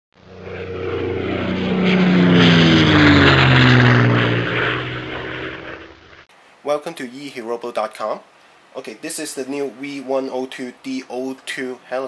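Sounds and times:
airplane engine flyby: 0:00.2 - 0:06.3.

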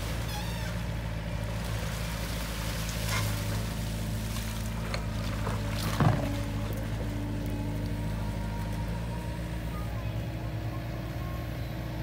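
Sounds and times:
excavator diesel engine running: 0:00.0 - 0:12.0
bucket digging wet mud: 0:01.9 - 0:07.2.

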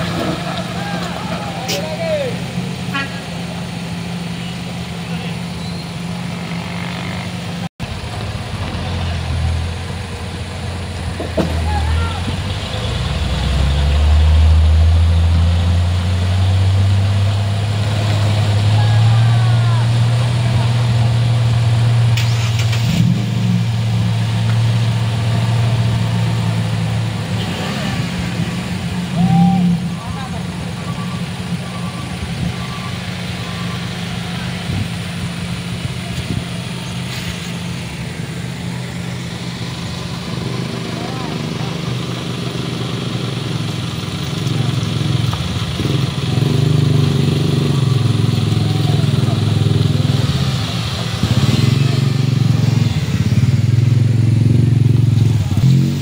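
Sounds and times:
truck engine under load: 0:00.0 - 0:56.0
small motorcycle engine: 0:40.3 - 0:56.0.

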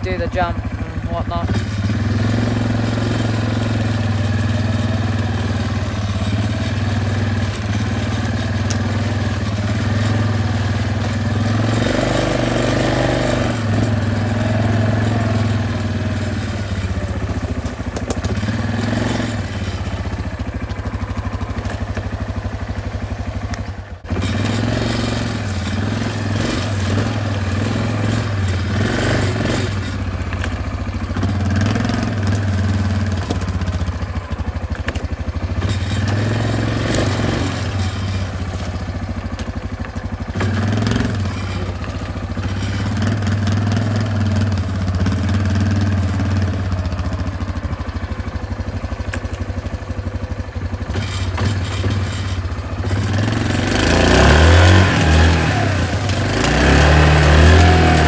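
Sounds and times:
quad bike engine droning: 0:00.0 - 0:58.0.

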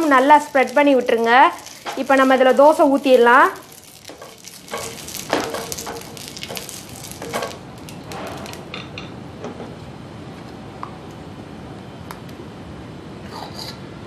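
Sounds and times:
oil sizzling on hot pan: 0:00.0 - 0:08.8
brush scraping and tapping pan: 0:04.0 - 0:07.6.

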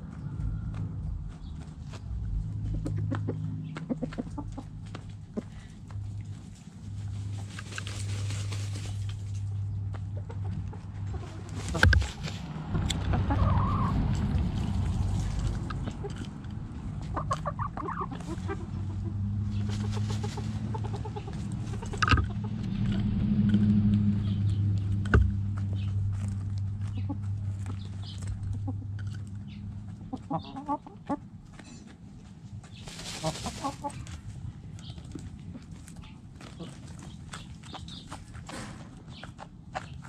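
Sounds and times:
chickens clucking: 0:00.0 - 0:40.0
scratching and pecking taps: 0:02.7 - 0:06.4
steady low hum: 0:14.0 - 0:30.2.

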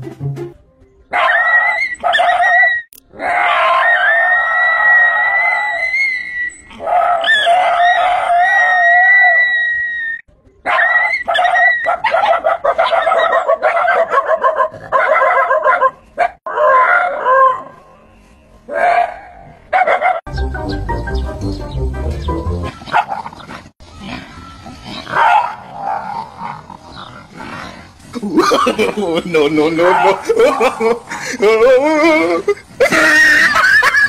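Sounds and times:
dog howling scream: 0:01.1 - 0:15.9, 0:16.5 - 0:17.7
dogs barking and yelping: 0:01.1 - 0:18.0, 0:18.7 - 0:20.3, 0:22.6 - 0:28.9, 0:29.8 - 0:31.3.

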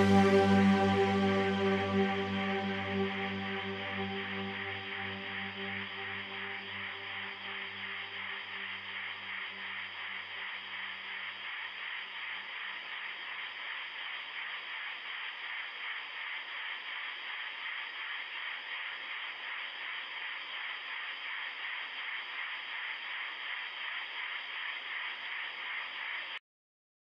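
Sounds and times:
static-like hiss: 0:00.0 - 0:26.4.

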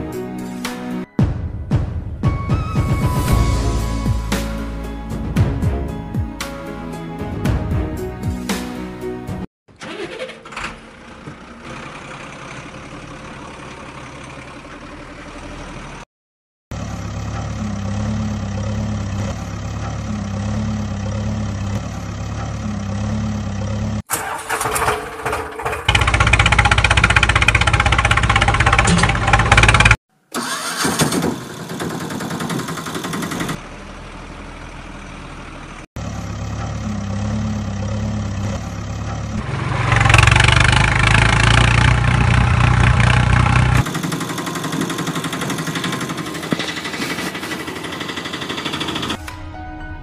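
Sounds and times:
vehicle engine starting and idling: 0:09.7 - 0:16.1, 0:16.8 - 0:49.4.

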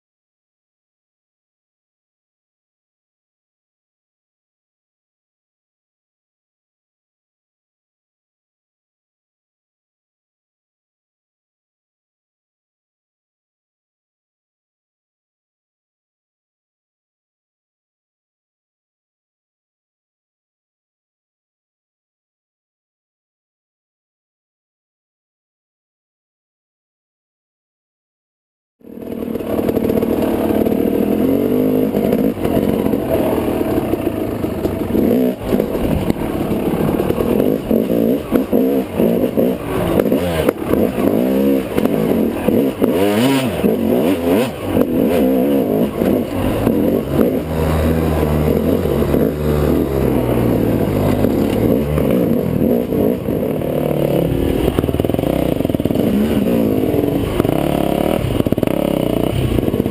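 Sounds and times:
dirt bike engine revving: 0:28.8 - 0:59.9.

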